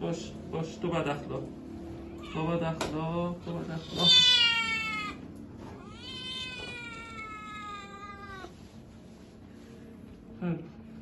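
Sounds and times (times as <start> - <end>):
cat yowling: 3.8 - 5.2, 5.8 - 8.6.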